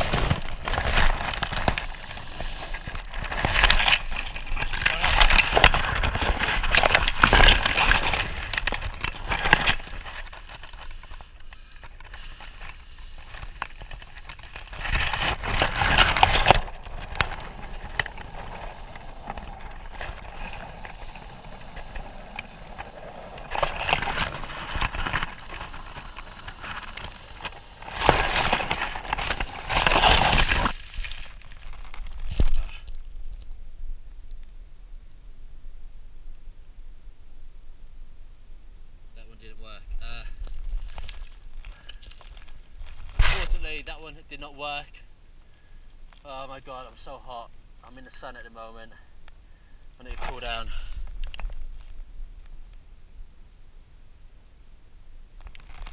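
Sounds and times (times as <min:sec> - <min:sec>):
dry leaves rustling and crackling: 0:13.2 - 0:32.6.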